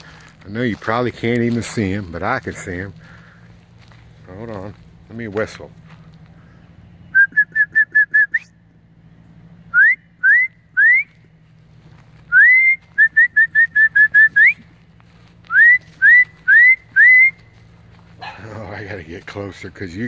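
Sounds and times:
person whistling: 0:07.1 - 0:08.5, 0:09.7 - 0:11.2, 0:12.3 - 0:14.6, 0:15.5 - 0:17.4.

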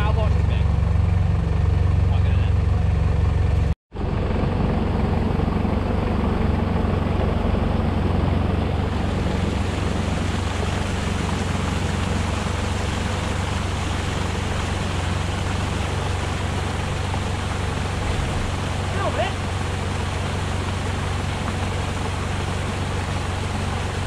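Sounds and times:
car engine idling: 0:00.0 - 0:24.0
stream pouring over rocks: 0:08.7 - 0:24.0.

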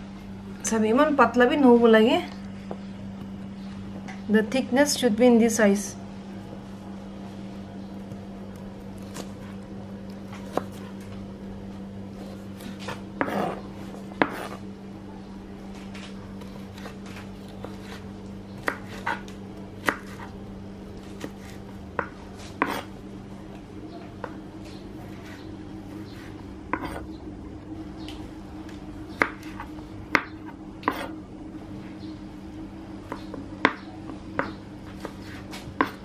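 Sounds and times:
knife slicing fruit: 0:08.6 - 0:11.0, 0:12.1 - 0:14.7, 0:16.5 - 0:22.9, 0:25.0 - 0:27.1, 0:29.2 - 0:31.2
knife scraping board: 0:12.1 - 0:14.6, 0:16.5 - 0:20.4, 0:21.1 - 0:22.9, 0:25.0 - 0:27.1, 0:29.2 - 0:31.2, 0:34.9 - 0:36.0.

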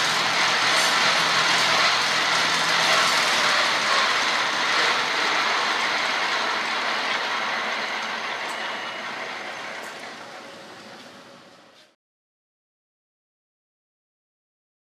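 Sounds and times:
rope-making machine running: 0:00.0 - 0:11.9.

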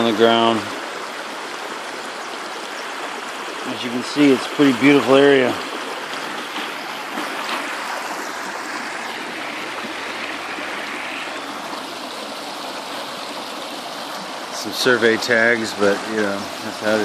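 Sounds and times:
creek running over rocks: 0:00.0 - 0:17.0.

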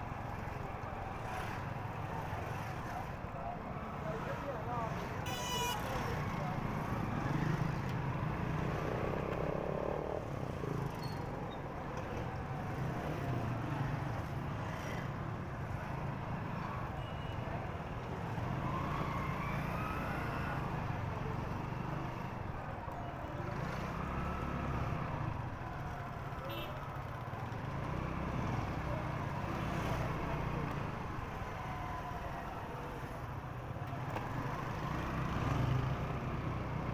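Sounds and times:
other motorbikes in traffic: 0:00.0 - 0:36.9.

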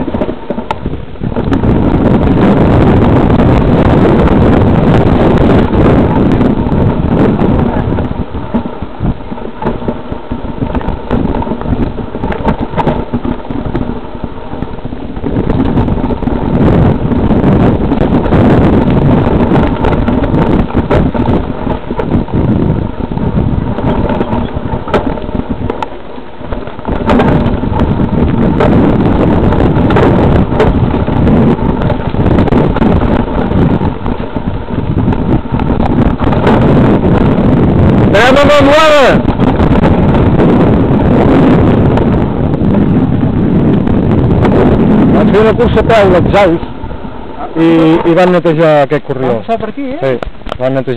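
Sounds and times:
bike rattling and clattering: 0:00.0 - 0:50.9
wind buffeting microphone: 0:00.0 - 0:50.9.

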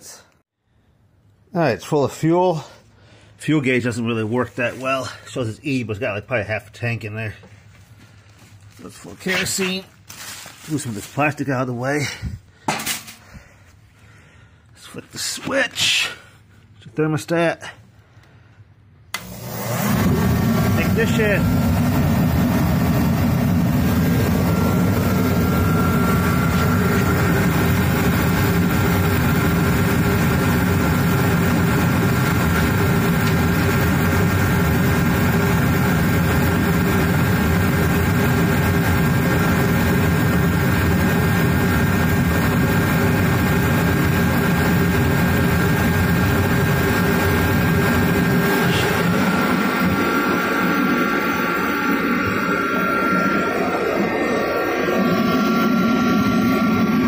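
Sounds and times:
heater fan and burner rushing: 0:19.1 - 0:57.0
thin high whine: 0:20.0 - 0:38.3, 0:39.0 - 0:57.0.

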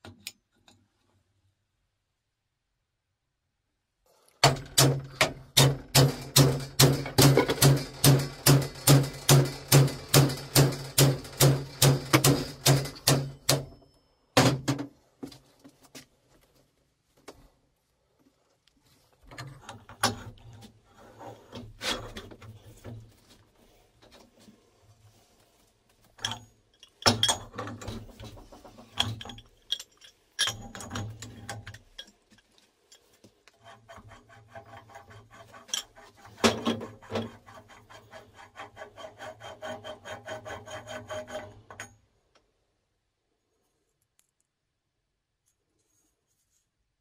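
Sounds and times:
rasping clicks of pipe threads: 0:26.1 - 0:42.5.

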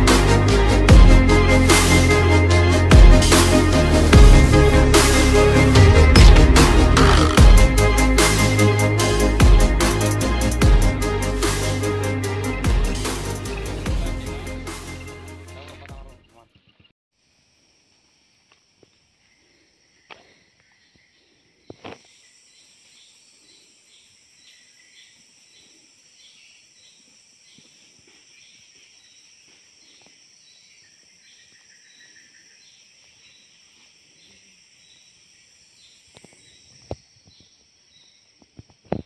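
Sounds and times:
high-pitched insect chorus: 0:17.2 - 0:39.0.

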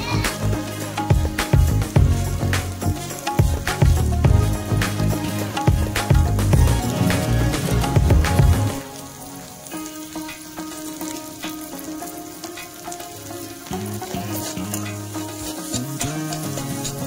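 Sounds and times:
faint background music: 0:00.0 - 0:17.0
food sizzling in a pan: 0:00.0 - 0:17.0
metal spatula scraping a pan: 0:14.0 - 0:17.0.

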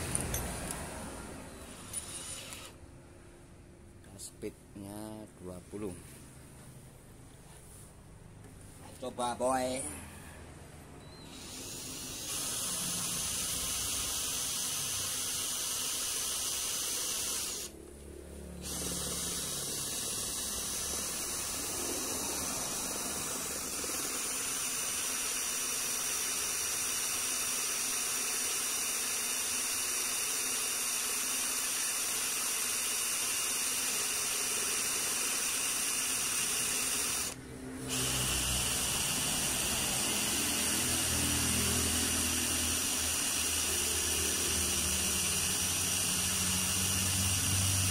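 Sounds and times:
cordless drill drilling into steel: 0:01.6 - 0:02.8, 0:11.2 - 0:17.8, 0:18.6 - 0:47.9.

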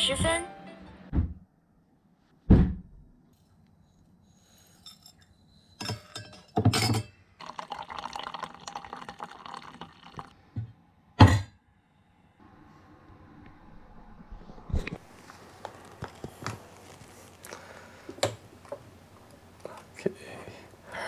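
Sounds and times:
water running into metal mug: 0:07.4 - 0:10.3.

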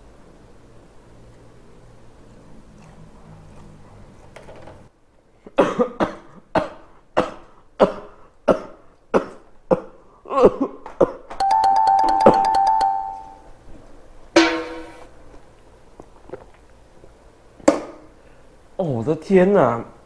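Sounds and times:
man coughing hard: 0:05.6 - 0:11.2
short musical jingle: 0:11.4 - 0:13.4.

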